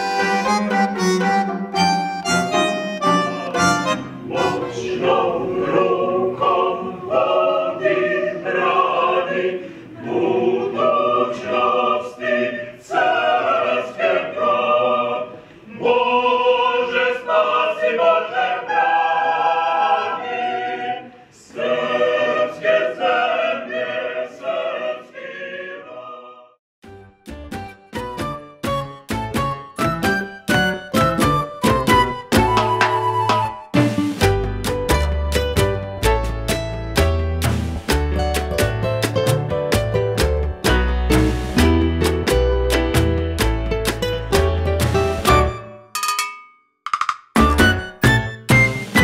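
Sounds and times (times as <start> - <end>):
mixed choir singing unaccompanied: 2.5 - 26.6.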